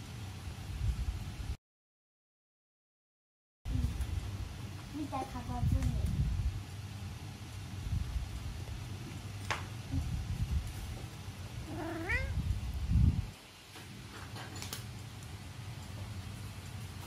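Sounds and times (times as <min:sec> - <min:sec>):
cat meowing: 0:11.6 - 0:12.5.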